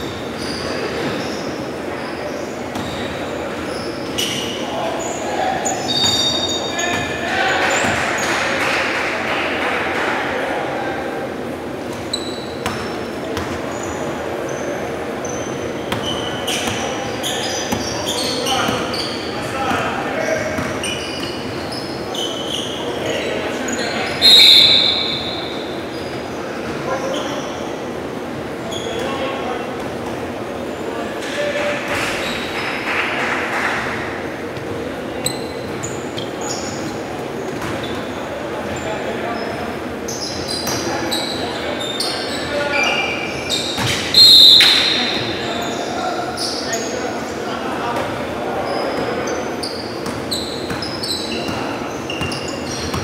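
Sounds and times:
sneakers squeaking: 0.0 - 8.7, 11.7 - 32.9, 33.6 - 53.0
echoing hall noise: 0.0 - 53.0
basketball bouncing: 37.5 - 37.8, 43.8 - 44.0.

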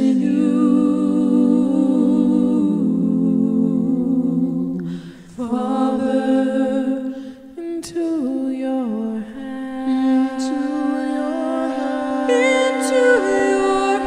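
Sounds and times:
person humming: 9.1 - 14.0.

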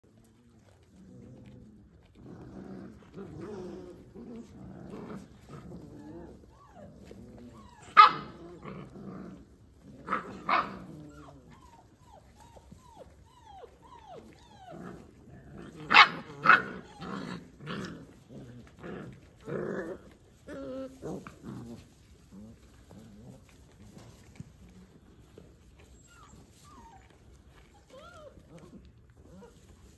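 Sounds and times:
puppies growling: 0.0 - 29.9
puppies whimpering yips: 6.0 - 8.0, 11.0 - 15.0, 25.8 - 28.7
puppy barks: 7.7 - 8.6, 10.1 - 11.6, 15.7 - 17.8.

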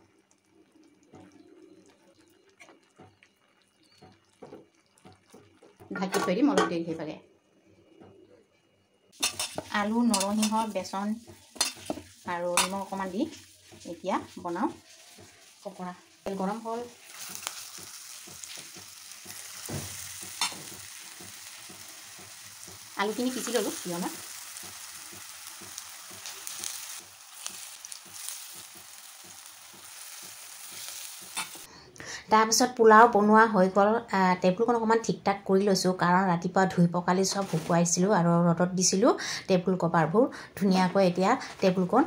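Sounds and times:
batter sizzling in hot oil: 0.0 - 5.9, 9.1 - 31.7.

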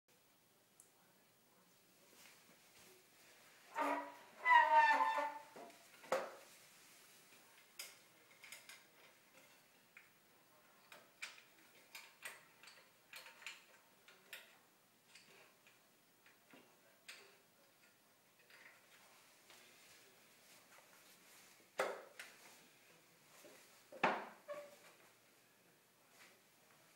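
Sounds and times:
wooden step stool creaking: 3.7 - 5.6.

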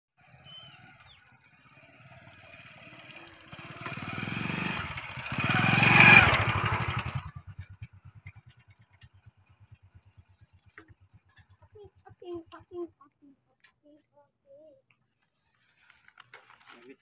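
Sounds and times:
motorcycle engine passing by: 0.2 - 12.6.

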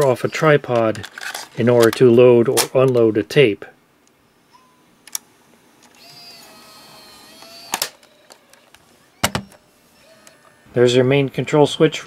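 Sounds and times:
tape mechanism clunk: 5.8 - 10.6
small loading motor whirring: 5.8 - 10.7.

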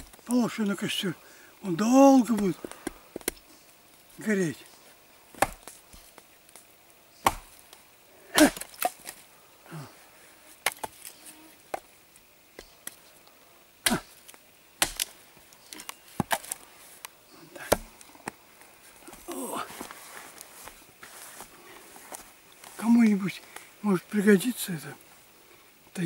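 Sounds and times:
axe chopping branch on wood: 5.3 - 5.8, 7.2 - 7.6, 8.3 - 9.2, 10.6 - 11.1, 13.8 - 16.6, 17.6 - 18.4.

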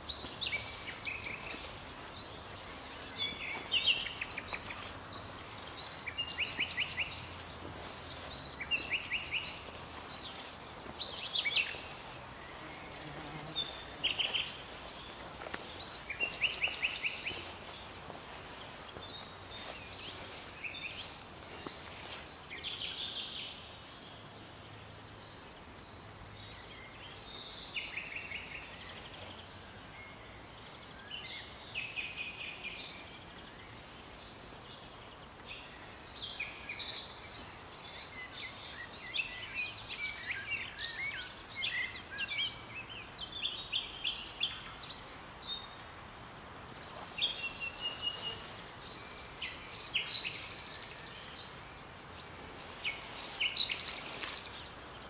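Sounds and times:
nightingale singing: 0.0 - 23.7
songbirds singing: 0.0 - 55.0
steady background hiss: 0.0 - 55.0.

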